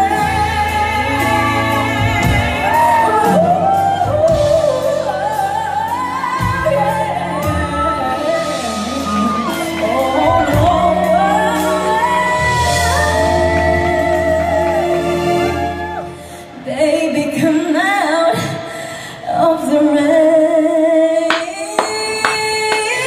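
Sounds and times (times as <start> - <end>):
band playing: 0.0 - 16.4, 21.3 - 23.0
woman singing a ballad: 0.0 - 23.0.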